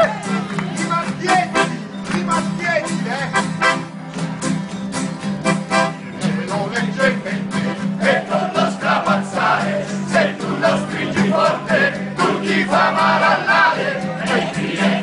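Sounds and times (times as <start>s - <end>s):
strummed acoustic guitars: 0.0s - 15.0s
accordion holding low tone: 1.4s - 15.0s
men singing in chorus: 6.4s - 15.0s.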